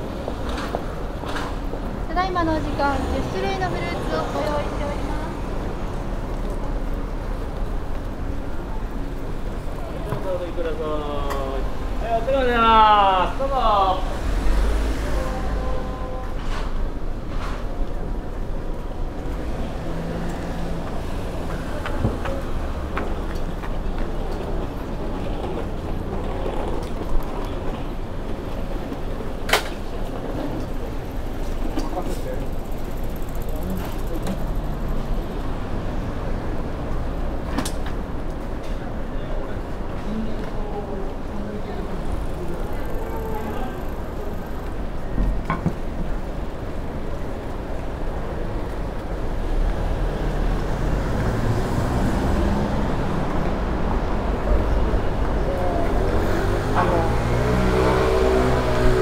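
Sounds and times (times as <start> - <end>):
low street rumble: 0.0 - 59.0
road traffic: 0.0 - 59.0
vehicle engine passing by: 13.8 - 15.9, 49.4 - 59.0.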